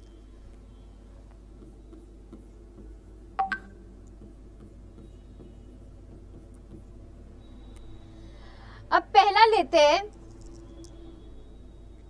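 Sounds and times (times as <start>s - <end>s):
pen tapping and writing: 1.3s - 7.2s.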